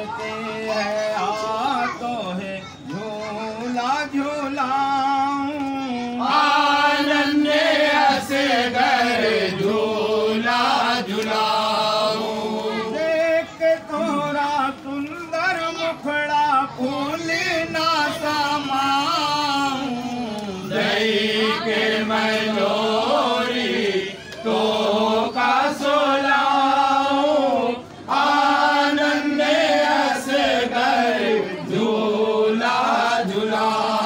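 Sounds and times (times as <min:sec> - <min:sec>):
men chanting: 0:00.0 - 0:14.8, 0:16.4 - 0:34.0.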